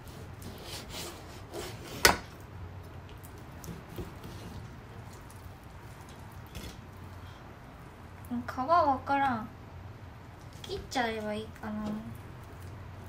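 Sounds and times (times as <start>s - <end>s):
knife scraping through meat: 0.0s - 2.1s.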